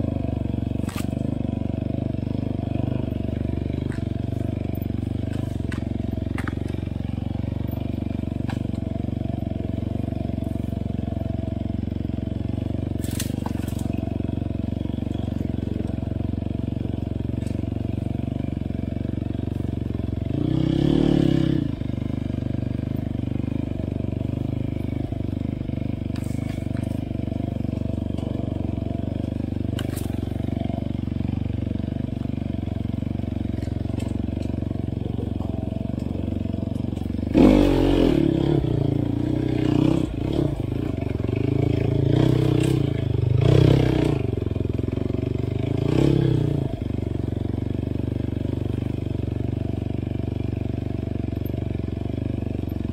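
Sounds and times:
dirt bike engine: 0:00.0 - 0:52.9.

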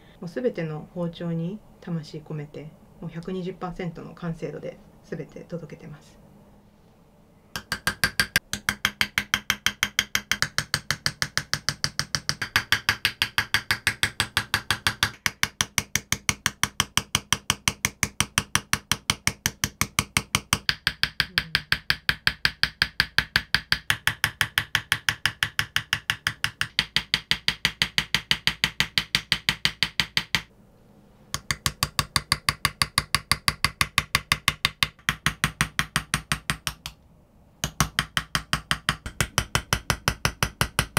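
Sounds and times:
hammer tapping steel chisel: 0:07.5 - 0:30.5, 0:31.3 - 0:37.0, 0:37.6 - 0:40.9.

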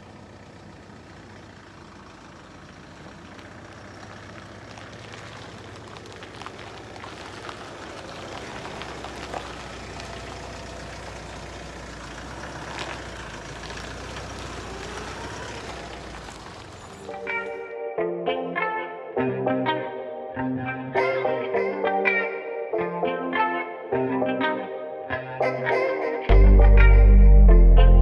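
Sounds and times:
pickup engine driving past: 0:00.0 - 0:17.5.

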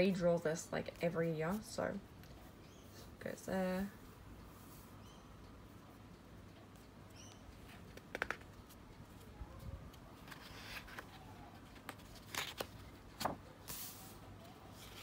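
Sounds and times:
paper pages scraping and crackling: 0:10.2 - 0:15.0.

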